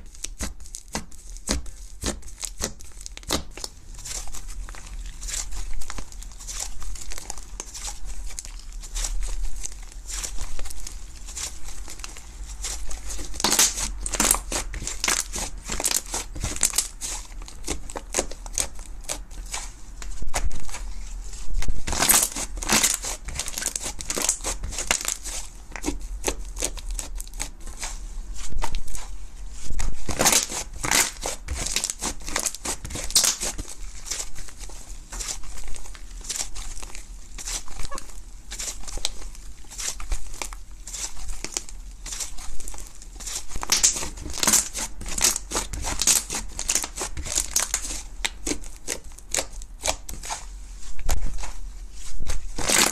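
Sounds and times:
slime squeezed wet crackles: 0:00.0 - 0:20.8, 0:21.9 - 0:27.9, 0:29.8 - 0:50.5.

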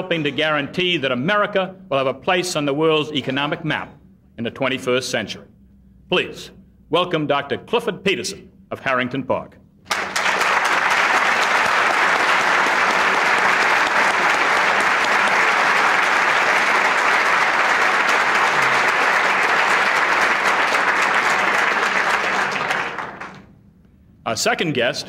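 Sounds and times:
audience applauding: 0:09.9 - 0:23.5.

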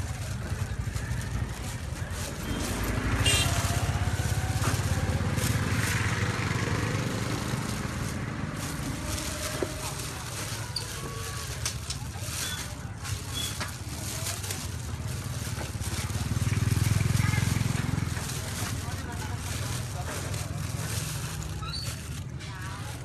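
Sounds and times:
small engine passing: 0:01.2 - 0:10.1.

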